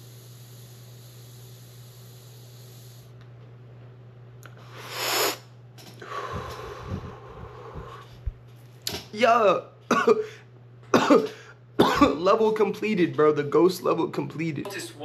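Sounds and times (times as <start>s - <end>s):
low hum and hiss: 0.0s - 15.0s
person breathing: 4.6s - 5.4s, 6.0s - 8.3s.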